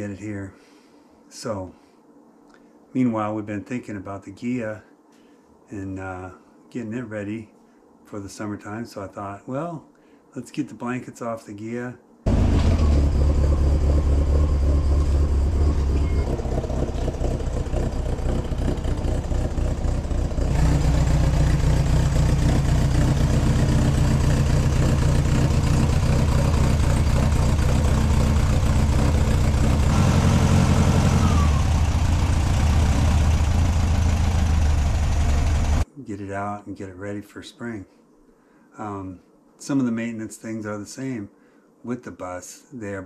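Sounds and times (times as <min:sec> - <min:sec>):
car engine running: 0:12.3 - 0:35.8.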